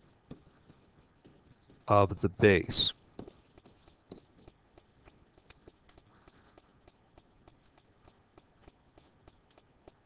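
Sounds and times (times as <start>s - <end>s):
stylus ticking on screen: 3.2s - 10.0s.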